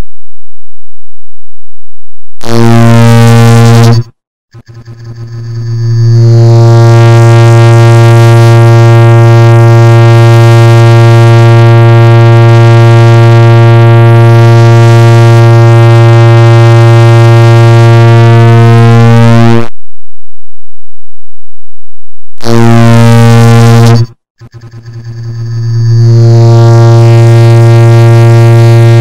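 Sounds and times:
rapid clock ticks buzzing tone: 0:04.6 - 0:06.9, 0:24.5 - 0:27.0.

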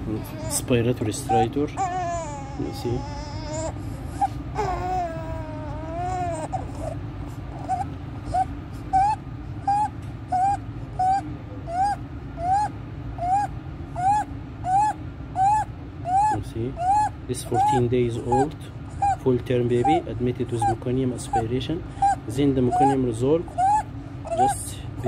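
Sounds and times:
newborn crying: 0:00.0 - 0:24.8
high-pitched crowing breaths: 0:02.5 - 0:04.9.

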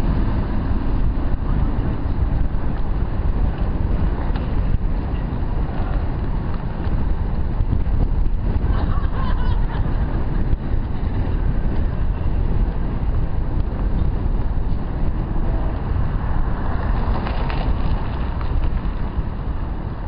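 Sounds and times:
wind rumbling on microphone: 0:00.0 - 0:20.0.

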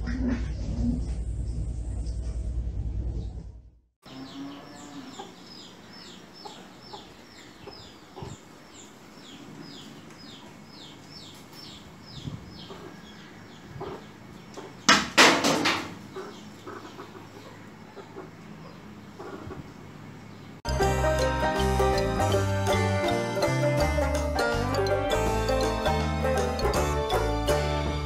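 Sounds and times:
hen clucking: 0:04.1 - 0:09.0, 0:12.5 - 0:14.9, 0:16.0 - 0:19.9.

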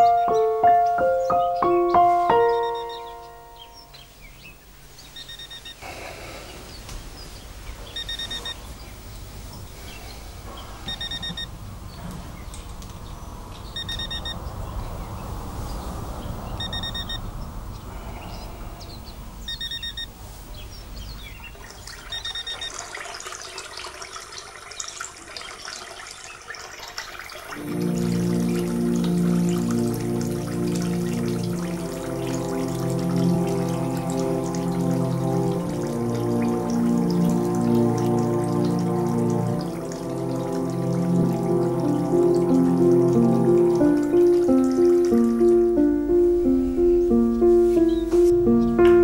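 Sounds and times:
alarm clock beeping: 0:02.5 - 0:03.4, 0:05.2 - 0:05.8, 0:08.0 - 0:08.6, 0:10.9 - 0:11.5, 0:13.8 - 0:14.4, 0:16.6 - 0:17.2, 0:19.5 - 0:20.1, 0:22.1 - 0:22.8
rushing background noise: 0:04.6 - 0:21.5, 0:42.2 - 0:49.0.

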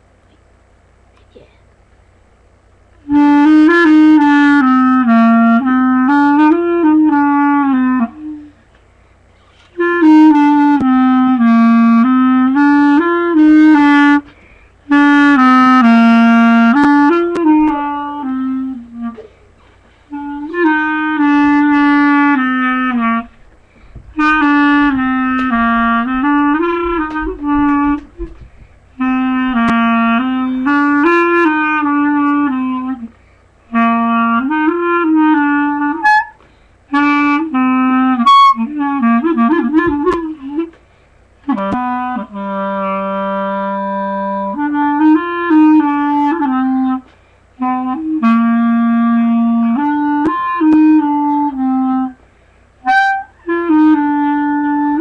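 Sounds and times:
solo woodwind melody: 0:03.0 - 0:55.0.

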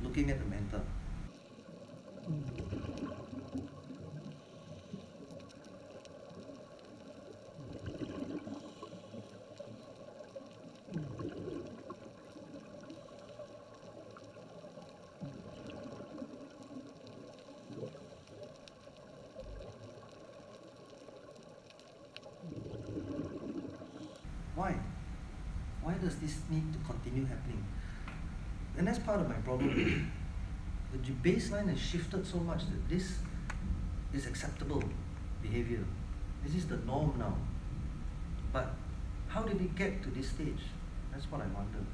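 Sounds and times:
diver exhaling bubbles gurgling: 0:02.3 - 0:03.8, 0:07.6 - 0:08.8, 0:10.9 - 0:12.1, 0:22.4 - 0:24.1.

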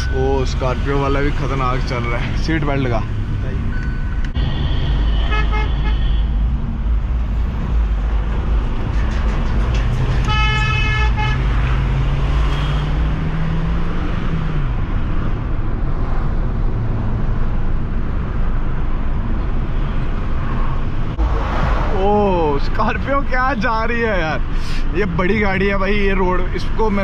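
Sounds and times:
road noise: 0:00.0 - 0:27.0
car horn: 0:04.4 - 0:06.4, 0:10.2 - 0:11.8
car engine: 0:06.3 - 0:27.0.

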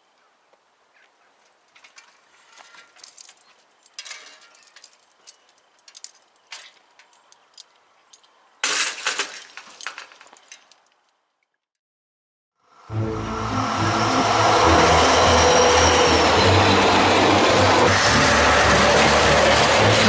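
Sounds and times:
metal lattice jingling: 0:01.6 - 0:11.0.

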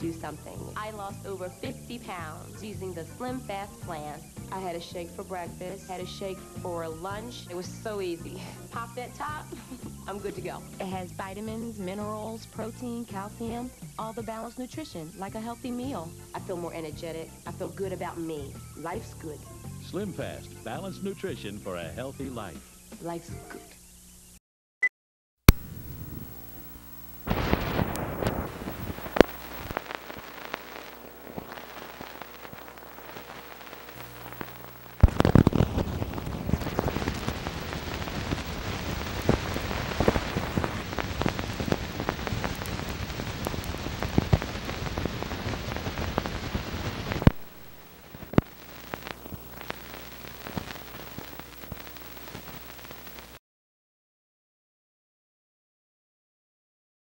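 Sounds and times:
old film crackling and popping: 0:25.5 - 0:53.4.

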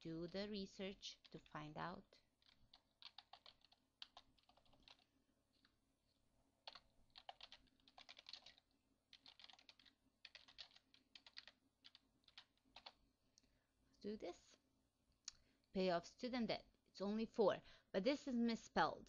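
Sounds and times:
keyboard typing: 0:00.0 - 0:01.7, 0:02.4 - 0:05.7, 0:06.6 - 0:13.0.

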